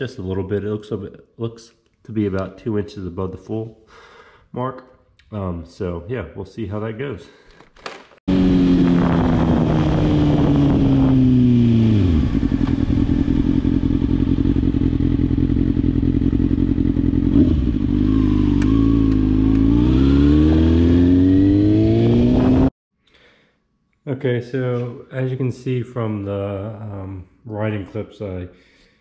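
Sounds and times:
motorcycle engine: 0:08.3 - 0:22.7.

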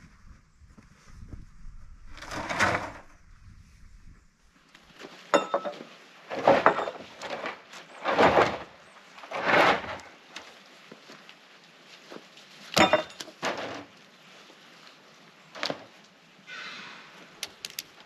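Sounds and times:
wooden boards knocking and scraping: 0:05.4 - 0:10.2
sharp clicks: 0:17.4 - 0:18.0.

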